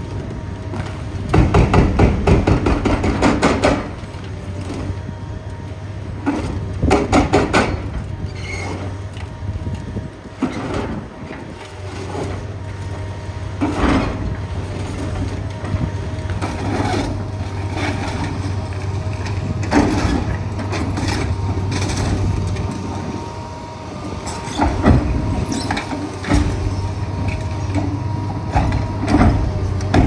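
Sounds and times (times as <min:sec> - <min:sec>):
diesel engine running: 0:00.0 - 0:30.0
hydraulic breaker hammering: 0:01.3 - 0:03.9, 0:06.8 - 0:07.9.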